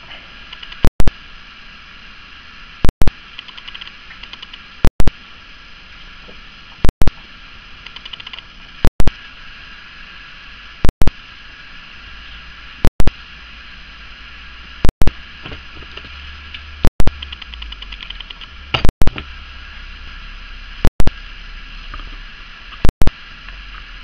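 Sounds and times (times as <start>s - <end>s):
steady background hiss: 0.0s - 24.0s
loud double click glitch: 0.6s - 1.2s, 4.9s - 5.2s
fast ticking handling noises: 2.9s - 5.1s, 7.9s - 9.1s, 16.9s - 19.1s.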